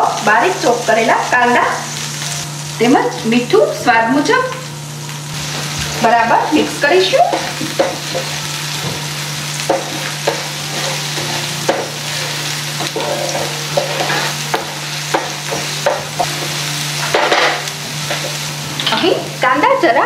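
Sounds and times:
onions sizzling in butter: 0.0 - 20.0
wooden spatula scraping pan: 9.7 - 16.5.

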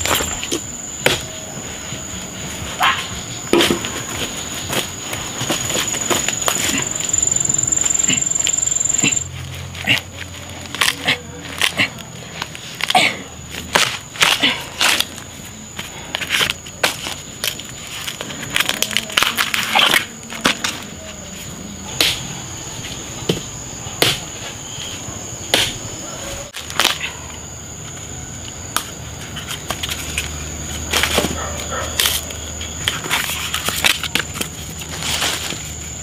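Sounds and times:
bamboo cracking and knocking: 9.9 - 15.3, 16.2 - 20.9, 26.5 - 27.1, 28.7 - 35.7.

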